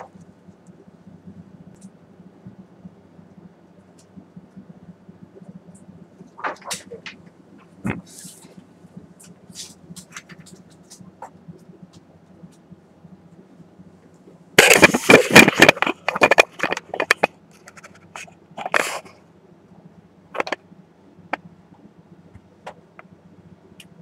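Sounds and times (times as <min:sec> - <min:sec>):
projector humming: 0:00.0 - 0:24.0
camera handling knocks and rustles: 0:14.6 - 0:18.0.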